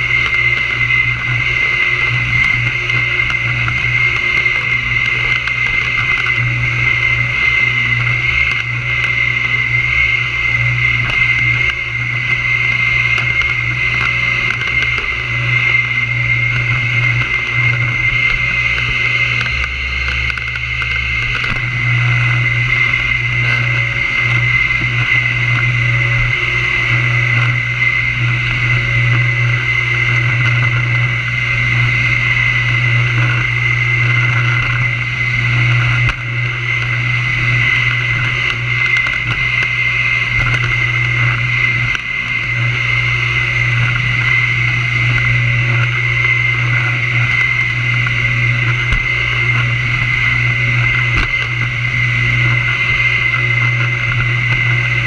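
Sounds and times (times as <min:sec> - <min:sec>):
vacuum cleaner running on carpet: 0:00.0 - 0:55.0.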